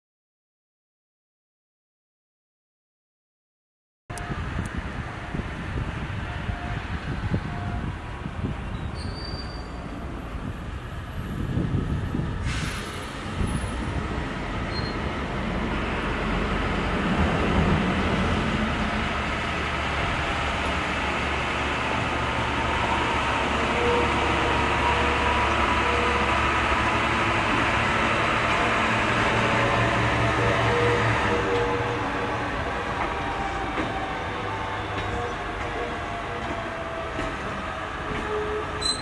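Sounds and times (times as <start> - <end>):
diesel locomotive engine rumbling: 4.1 - 39.0
wheel squeal: 8.7 - 9.9, 14.7 - 15.0, 38.2 - 39.0.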